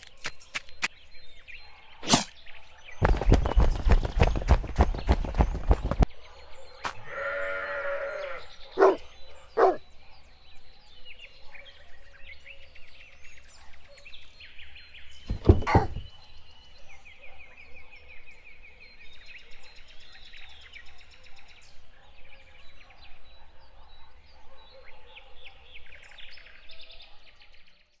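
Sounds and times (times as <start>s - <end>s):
birds chirping and trilling: 0.0s - 27.7s
drawn-out animal cry: 7.0s - 9.0s, 9.6s - 9.8s
loud thud: 15.3s - 16.1s
short knocks: 15.3s - 16.1s.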